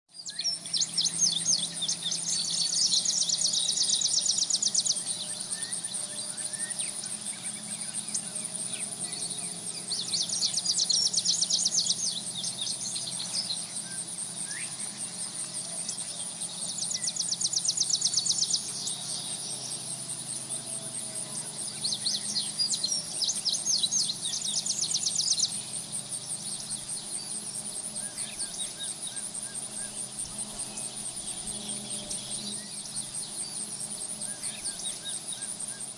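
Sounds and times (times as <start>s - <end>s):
high insect drone: 0.1s - 35.9s.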